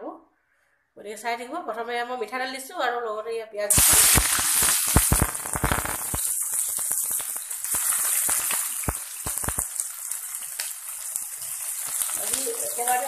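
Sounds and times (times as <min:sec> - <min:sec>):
onions sizzling in hot oil: 0:03.7 - 0:13.0.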